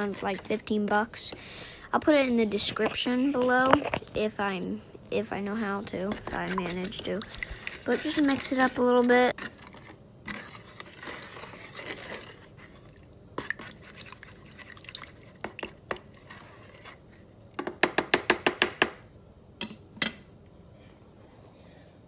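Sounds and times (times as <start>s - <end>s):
spatula scraping and knocking pot: 0.0s - 4.3s, 5.5s - 12.8s
water sloshing in pot: 0.0s - 4.6s, 5.2s - 17.6s.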